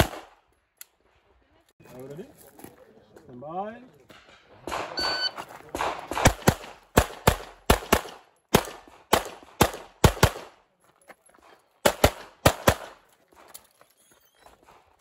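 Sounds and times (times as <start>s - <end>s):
pistol shots in double taps: 5.7s - 10.5s.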